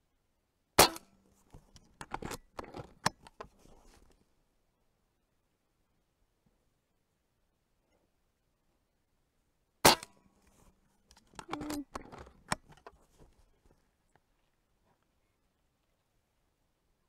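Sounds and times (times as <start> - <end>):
air rifle shot: 9.8 - 10.2.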